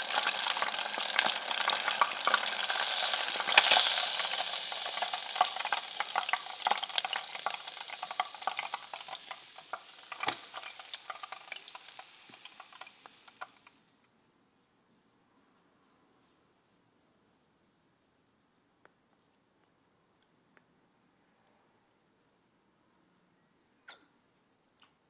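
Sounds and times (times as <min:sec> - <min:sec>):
hot oil sizzling and popping: 0:00.0 - 0:13.9.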